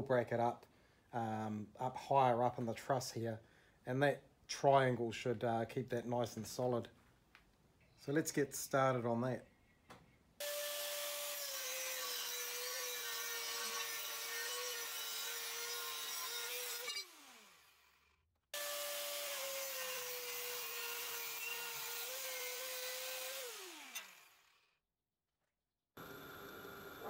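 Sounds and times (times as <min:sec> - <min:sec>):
angle grinder cutting steel: 0:10.4 - 0:18.0, 0:18.6 - 0:24.6.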